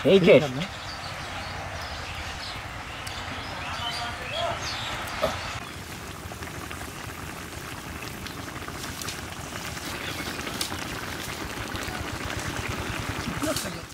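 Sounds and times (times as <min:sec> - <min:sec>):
gravy simmering in a pot: 0:05.6 - 0:13.9.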